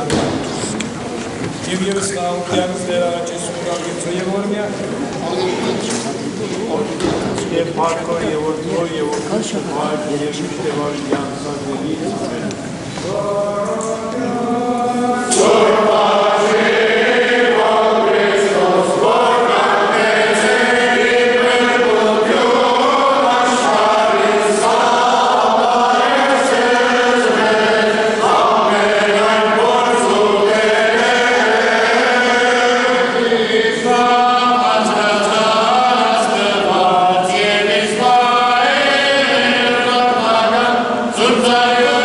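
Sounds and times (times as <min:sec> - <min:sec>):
church choir chanting a hymn: 0:12.9 - 0:42.0.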